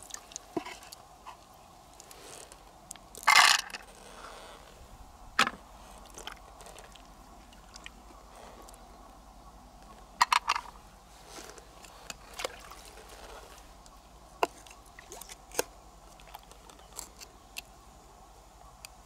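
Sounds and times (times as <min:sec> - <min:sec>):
wet squelches of mussel flesh: 0:11.2 - 0:13.7.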